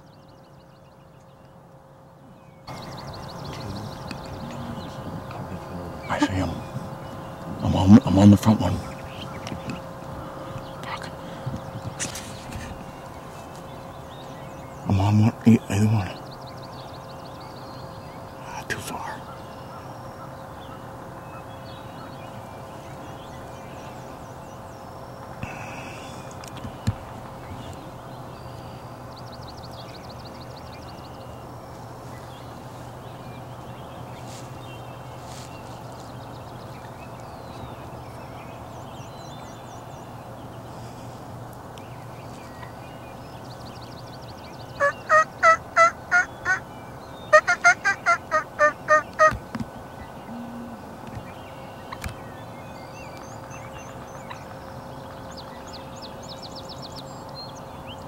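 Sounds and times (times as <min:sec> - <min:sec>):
turkey gobbling: 0:44.8 - 0:46.6, 0:47.3 - 0:49.4.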